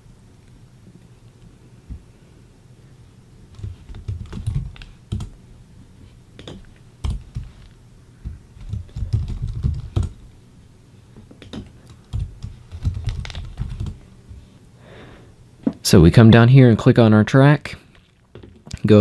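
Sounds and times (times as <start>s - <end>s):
typing on computer keyboard: 3.6s - 5.4s, 6.4s - 7.5s, 8.6s - 10.2s, 11.4s - 14.0s.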